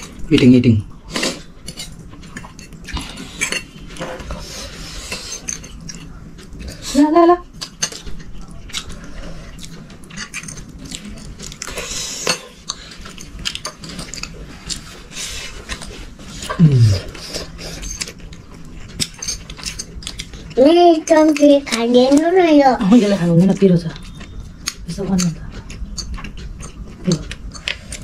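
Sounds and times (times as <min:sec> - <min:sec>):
cutlery and dishes clinking: 0:01.6 - 0:04.4, 0:05.0 - 0:06.7, 0:07.6 - 0:08.3, 0:09.6 - 0:14.9, 0:17.6 - 0:20.4.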